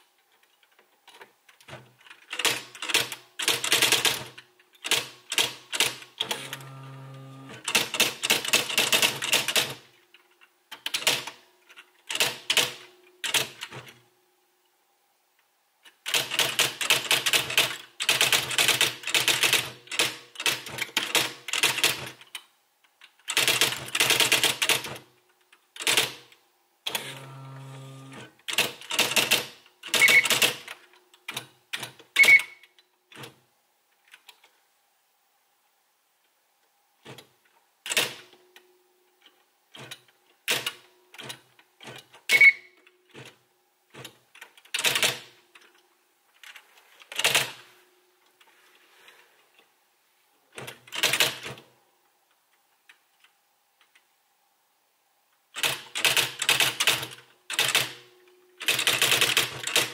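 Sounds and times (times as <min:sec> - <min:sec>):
electronic typewriter strikes: 0:02.3 - 0:09.8, 0:26.9 - 0:30.7, 0:31.3 - 0:32.6, 0:39.8 - 0:43.3, 0:55.6 - 0:59.9
typewriter motor whirr: 0:02.4 - 0:09.8, 0:26.9 - 0:30.7, 0:58.6 - 0:59.9.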